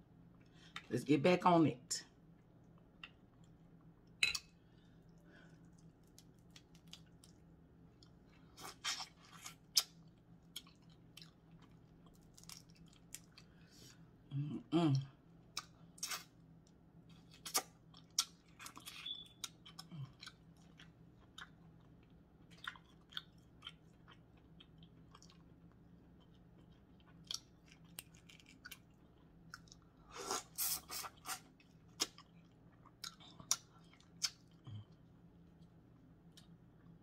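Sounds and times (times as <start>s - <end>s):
chewing and mouth smacks: 5.1s - 13.5s, 17.2s - 35.0s.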